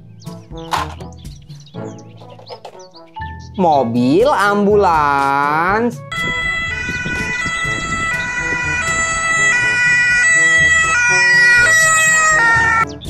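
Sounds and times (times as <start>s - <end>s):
ambulance two-tone siren: 6.1s - 12.9s.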